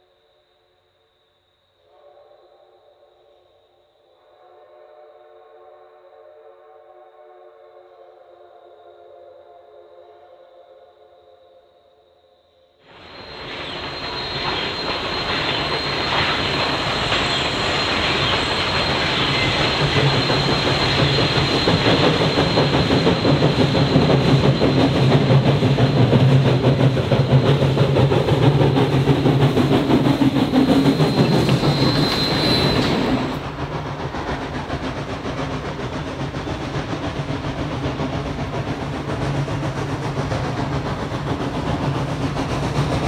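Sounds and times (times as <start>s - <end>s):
high wheel squeal: 12.9s - 33.7s
steam train running past: 12.9s - 43.0s
wheels clacking on rails: 12.9s - 43.0s.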